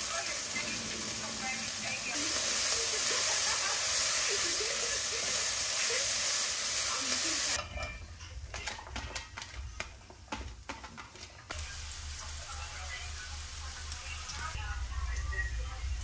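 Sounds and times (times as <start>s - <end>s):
food sizzling in hot pan: 0.0s - 7.6s, 11.4s - 15.2s
low hum: 13.6s - 16.0s.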